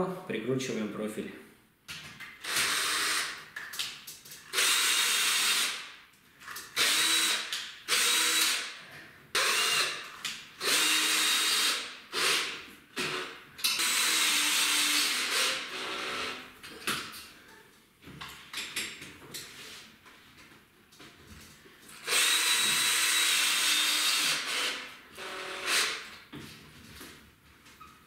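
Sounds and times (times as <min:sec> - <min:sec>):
cordless drill driving screws: 0:02.4 - 0:03.4, 0:04.5 - 0:05.8, 0:06.8 - 0:08.7, 0:09.4 - 0:16.4, 0:22.0 - 0:26.1.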